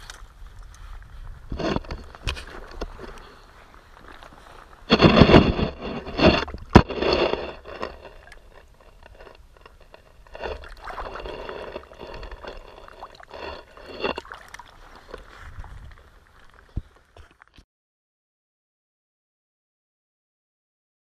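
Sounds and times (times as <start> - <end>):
river water splashing: 10.2 - 16.8.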